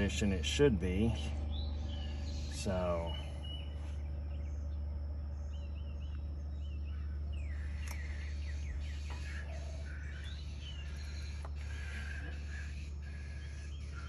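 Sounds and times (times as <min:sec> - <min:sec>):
small birds chirping: 0:00.0 - 0:14.0
steady low hum: 0:00.0 - 0:14.0
faint clicks: 0:07.7 - 0:08.4.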